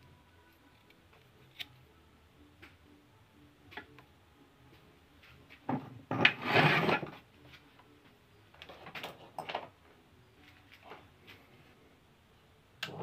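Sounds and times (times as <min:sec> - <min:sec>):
metal scraping on wooden workbench: 0:05.7 - 0:07.2.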